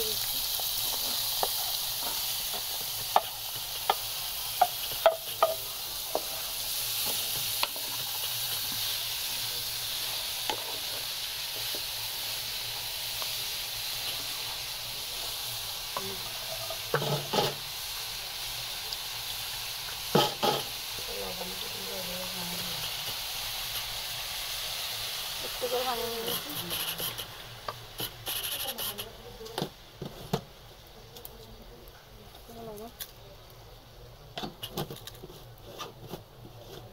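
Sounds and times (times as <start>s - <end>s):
vegetables sizzling in a pan: 0.0s - 36.9s
wooden spatula knocking on pan: 4.6s - 6.3s.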